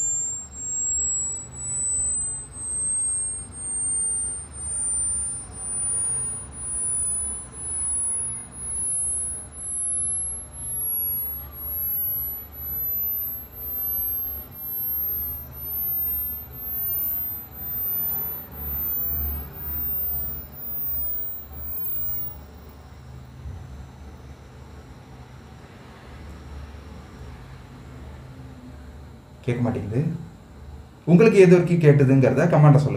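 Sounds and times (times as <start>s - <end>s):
high-pitched test tone rising: 0.0s - 24.2s.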